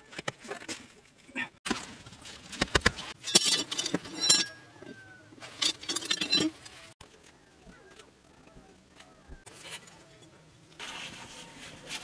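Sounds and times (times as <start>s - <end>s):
metal rods clinking and scraping: 3.0s - 7.0s, 9.5s - 12.0s.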